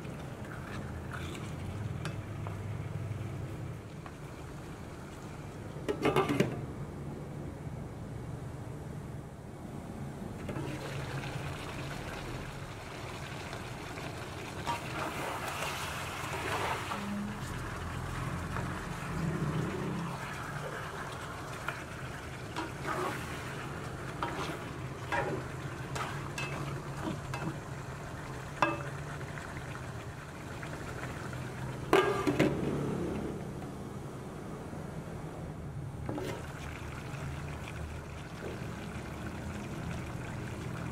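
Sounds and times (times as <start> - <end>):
chicken sizzling in pan: 10.6 - 29.9
spatula stirring in pan: 20.2 - 27.7.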